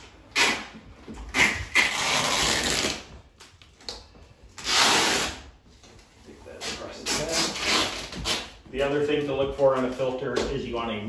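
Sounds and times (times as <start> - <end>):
duct tape ripping off roll: 0.2 - 3.1, 4.6 - 5.5, 6.6 - 8.6.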